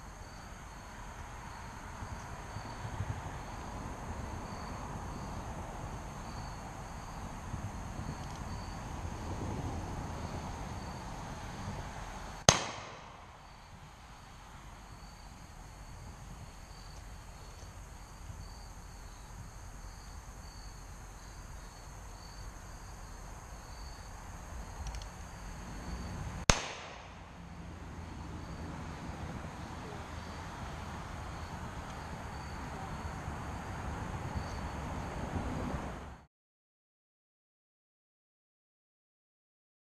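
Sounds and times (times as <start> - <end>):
insects chirping: 0.0 - 11.8, 12.4 - 35.3
revolver shots: 12.5 - 13.4, 26.5 - 27.2.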